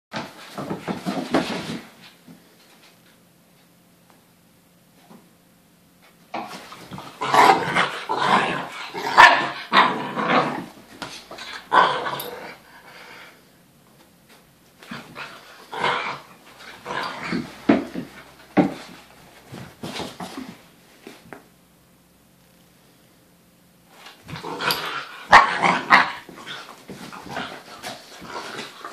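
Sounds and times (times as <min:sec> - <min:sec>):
dogs play barking: 0:06.9 - 0:12.6, 0:24.3 - 0:28.9
dogs growling: 0:06.9 - 0:13.2, 0:14.9 - 0:18.1, 0:24.3 - 0:28.9.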